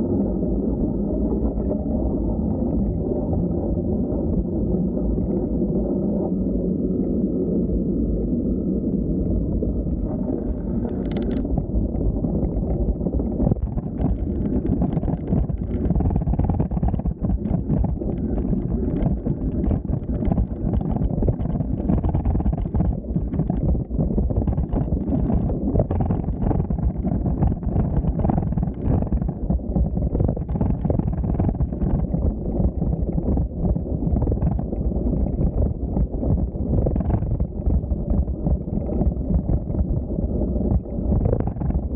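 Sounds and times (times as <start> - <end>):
crackle of small rattles: 0.2 - 41.9
wind buffeting microphone: 10.5 - 41.9.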